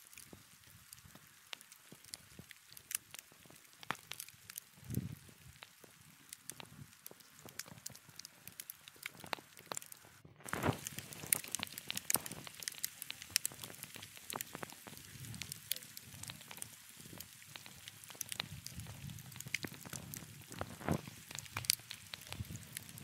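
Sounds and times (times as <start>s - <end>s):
wood fire crackling and popping: 0.0s - 23.0s.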